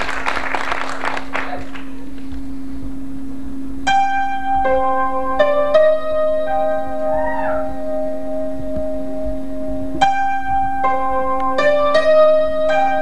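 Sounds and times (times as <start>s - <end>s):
steady low hum: 0.0s - 13.0s
electric keyboard slow notes: 3.9s - 13.0s.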